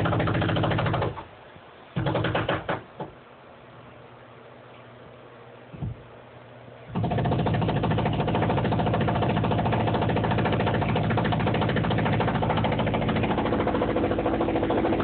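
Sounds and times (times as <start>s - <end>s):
jackhammer hammering: 0.0s - 1.2s, 2.0s - 2.8s, 6.9s - 15.0s.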